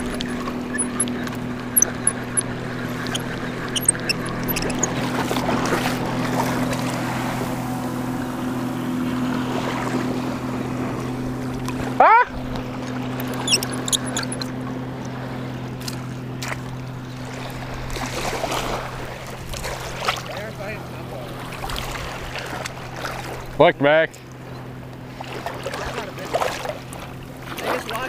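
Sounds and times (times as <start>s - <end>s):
sharp rising squeal: 0.0s - 5.2s, 13.4s - 14.5s
boat motor droning: 0.0s - 28.0s.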